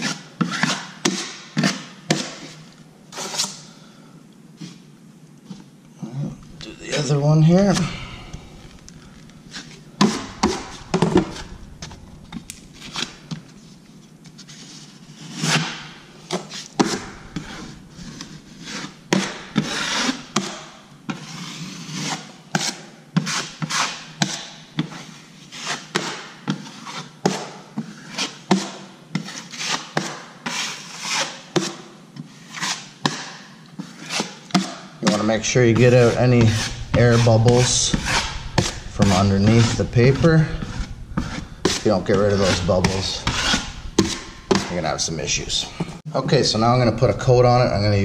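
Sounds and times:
drywall knife scraping paper: 0:25.1 - 0:28.4, 0:29.1 - 0:34.5.

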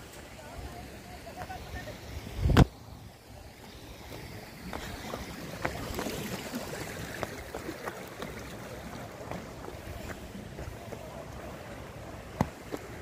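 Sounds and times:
footsteps on rock: 0:04.7 - 0:13.0.

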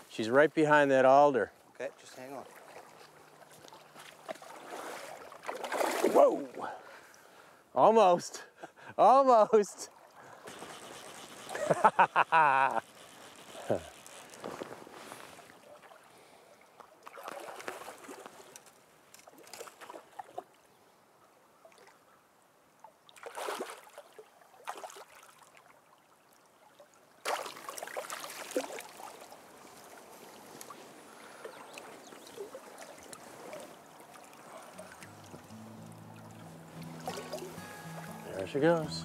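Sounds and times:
river current running: 0:00.0 - 0:20.5, 0:27.2 - 0:39.0
water splashing: 0:02.1 - 0:06.8, 0:17.0 - 0:18.5, 0:23.0 - 0:39.0.

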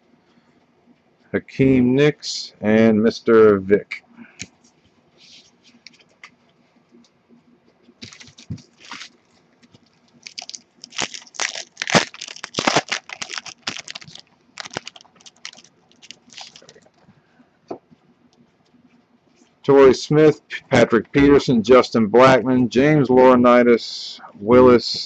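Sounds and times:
foil wrapper tearing and crinkling: 0:08.0 - 0:16.8.

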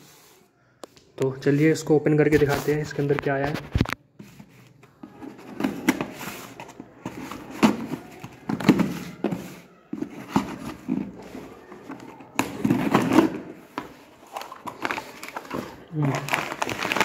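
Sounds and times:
cardboard box scraping and rustling: 0:04.2 - 0:13.4.

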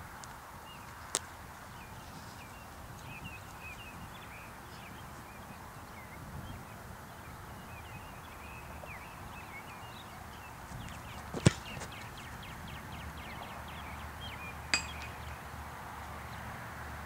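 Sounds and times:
foot kicking football: 0:10.8 - 0:12.2
click with metallic ring: 0:14.7 - 0:15.2.

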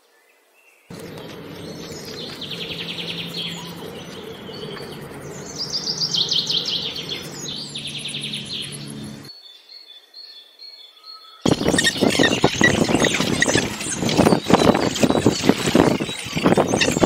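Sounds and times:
bird chattering trills: 0:00.9 - 0:09.3, 0:11.5 - 0:17.0
faint high chirps: 0:00.9 - 0:09.3
low background rumble: 0:00.9 - 0:09.3.

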